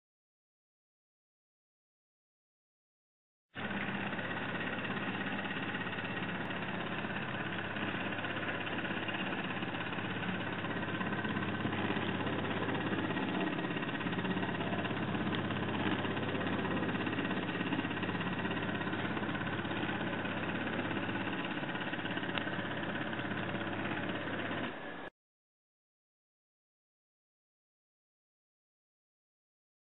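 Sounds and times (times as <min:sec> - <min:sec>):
small motor humming: 0:03.6 - 0:25.1.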